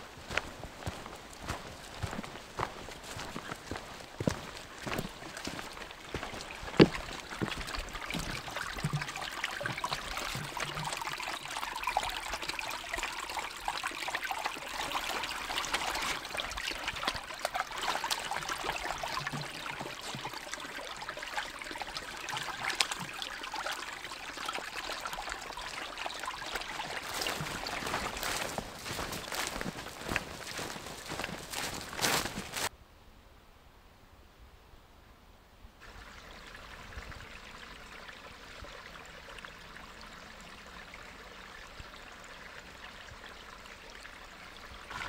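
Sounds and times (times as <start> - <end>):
soft footsteps: 0.0 - 9.2, 26.5 - 32.7
stream trickling over stones: 0.0 - 32.7, 35.8 - 45.0.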